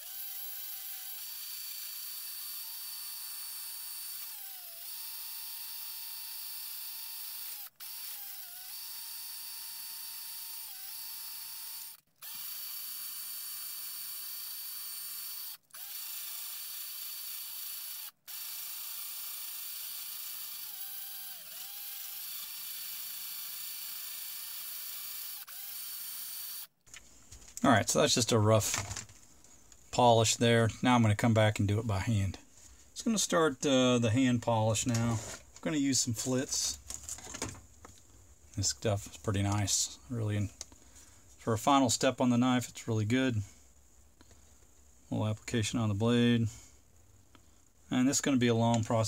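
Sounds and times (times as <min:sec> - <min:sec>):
cordless drill motor whine: 0:00.0 - 0:26.7.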